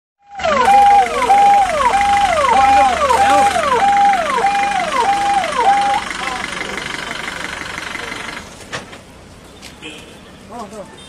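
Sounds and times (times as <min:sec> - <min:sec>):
ambulance siren fast wail: 0:00.2 - 0:06.2.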